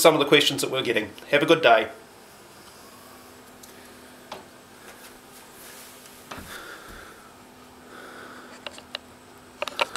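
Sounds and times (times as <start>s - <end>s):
faint steady hum: 0.0s - 9.9s
breathy noise: 6.3s - 8.8s.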